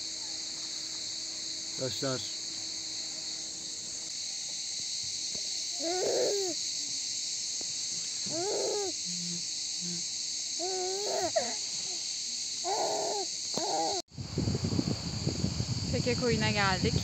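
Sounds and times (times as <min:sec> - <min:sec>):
cicadas buzzing: 0:00.0 - 0:17.0
baby babbling and cooing: 0:05.7 - 0:06.6, 0:08.3 - 0:09.0, 0:10.6 - 0:12.0, 0:12.6 - 0:14.0.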